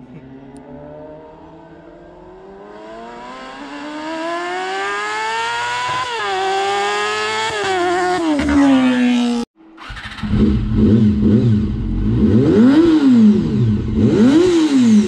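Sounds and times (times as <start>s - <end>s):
motorcycle engine revving: 0.4s - 15.0s.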